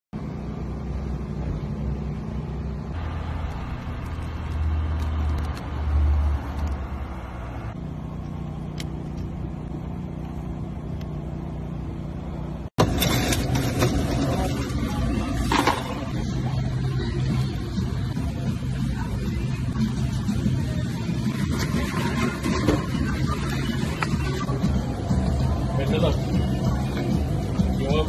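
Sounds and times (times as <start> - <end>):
noisy clatter: 12.8 - 16.6.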